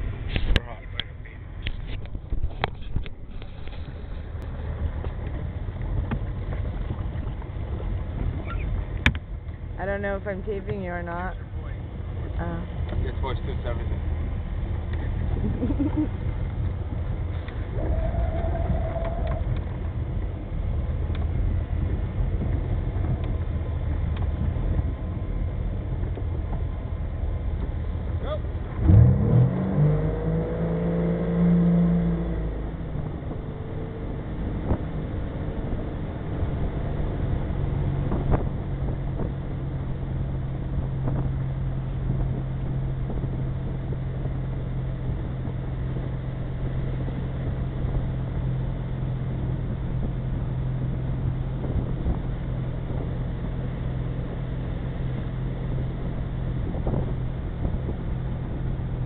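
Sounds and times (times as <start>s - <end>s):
wind and water noise: 0.0s - 59.0s
boat engine revving: 3.1s - 59.0s.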